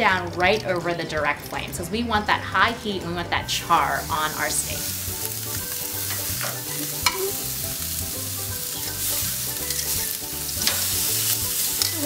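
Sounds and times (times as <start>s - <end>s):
background music: 0.0s - 12.0s
steak sizzling on grill: 3.4s - 12.0s
metal tongs clicking: 6.1s - 7.4s, 9.6s - 12.0s.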